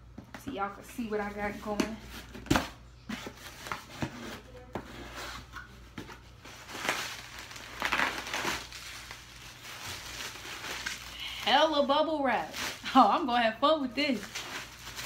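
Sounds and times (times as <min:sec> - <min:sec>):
bubble wrap crinkling: 0:03.2 - 0:15.0.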